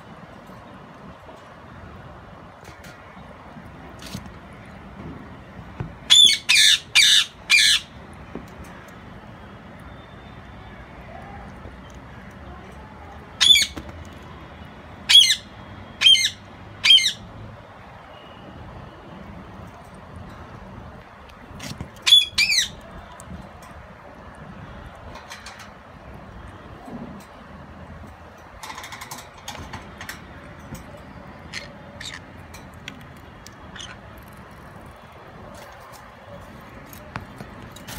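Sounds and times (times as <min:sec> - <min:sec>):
parrot calls: 0:06.1 - 0:08.0, 0:31.4 - 0:32.4, 0:33.7 - 0:34.3.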